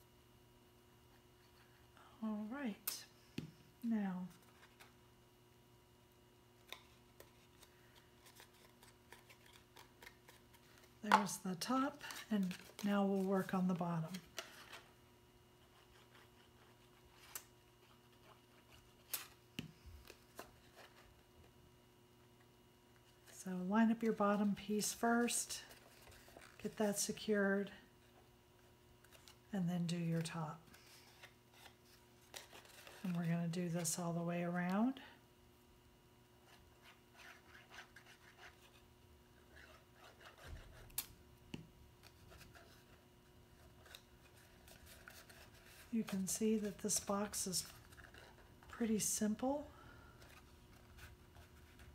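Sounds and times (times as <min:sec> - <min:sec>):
cardstock rustling and clicking: 0:06.6 - 0:14.9, 0:43.6 - 0:48.9
cardstock rustling and rubbing: 0:06.6 - 0:15.0, 0:15.6 - 0:21.2, 0:24.5 - 0:28.2, 0:30.1 - 0:34.1, 0:36.4 - 0:41.0, 0:42.0 - 0:51.9.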